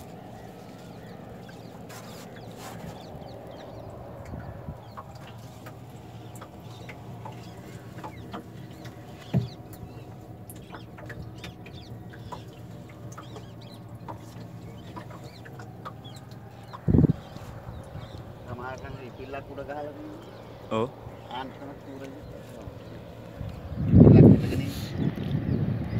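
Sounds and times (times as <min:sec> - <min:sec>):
steady low hum: 0:00.0 - 0:25.9
bird clucks and chirps: 0:00.2 - 0:18.4
dull knocks: 0:08.0 - 0:09.7.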